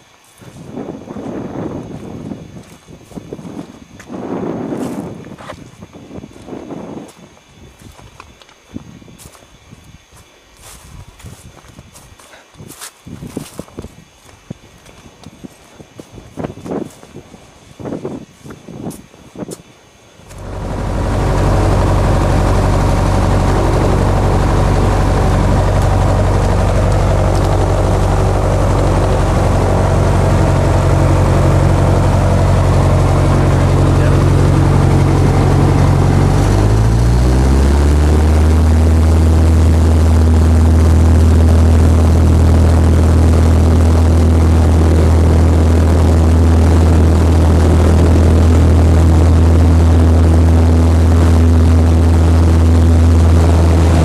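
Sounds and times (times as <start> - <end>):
propeller plane engine from cabin: 20.2 - 54.0.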